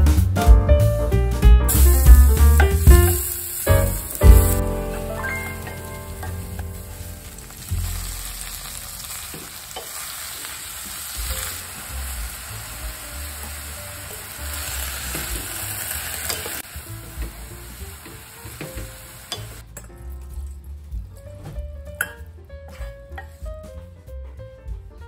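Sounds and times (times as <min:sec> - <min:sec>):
garlic sizzling in oil: 0:01.7 - 0:19.6
greens sauteing: 0:01.7 - 0:19.8.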